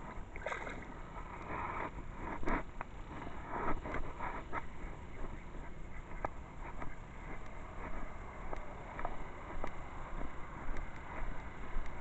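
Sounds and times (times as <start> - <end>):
barefoot footsteps sloshing in water: 0.1 - 1.0.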